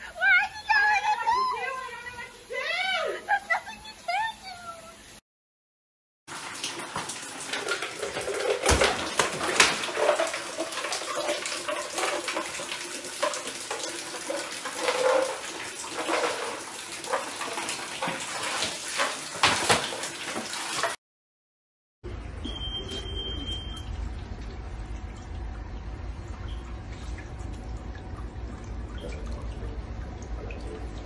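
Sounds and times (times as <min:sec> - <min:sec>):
water running and splashing: 0:00.0 - 0:05.2, 0:06.3 - 0:21.0
sharp drips and splats: 0:06.3 - 0:21.0
low hum: 0:22.1 - 0:31.0.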